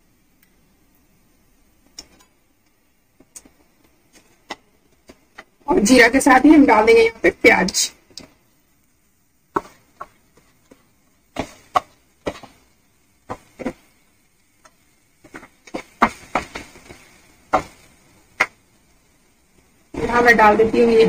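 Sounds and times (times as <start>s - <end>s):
utensil scraping frying pan: 14.6s - 18.6s.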